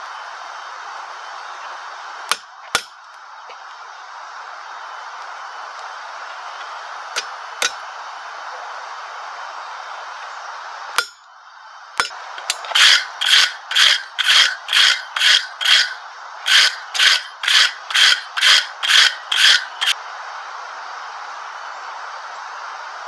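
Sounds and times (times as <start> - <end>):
wire brush scrubbing steel: 12.0 - 20.0.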